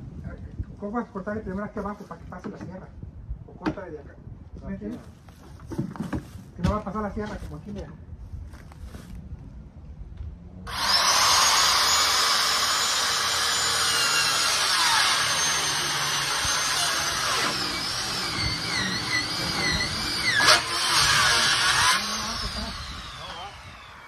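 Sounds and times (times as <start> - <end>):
circular saw cutting plastic: 10.7 - 24.0.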